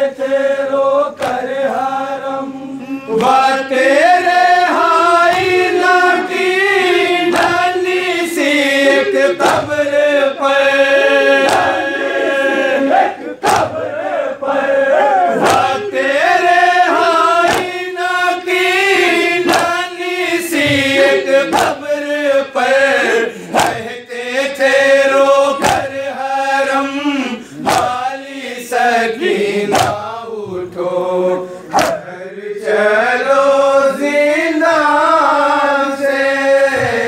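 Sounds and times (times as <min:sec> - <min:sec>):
men chanting a lament in chorus: 0:00.0 - 0:37.0
hands slapping chests in unison: 0:01.1 - 0:01.8, 0:03.1 - 0:24.0, 0:24.6 - 0:26.7, 0:27.5 - 0:31.0, 0:31.6 - 0:32.4.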